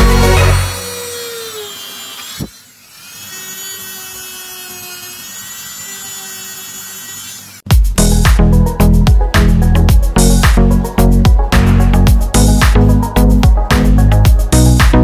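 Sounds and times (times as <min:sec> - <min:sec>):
rotary tool whining: 0:00.0 - 0:07.7.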